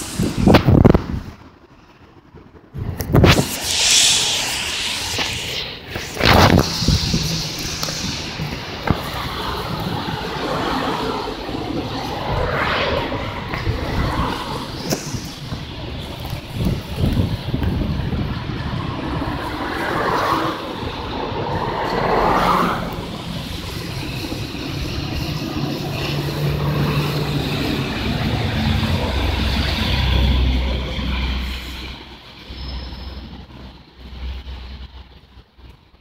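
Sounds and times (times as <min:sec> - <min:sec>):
low drone: 0:00.0 - 0:34.9
bus engine whining: 0:00.0 - 0:36.0
tyres hissing on wet road: 0:00.0 - 0:36.0.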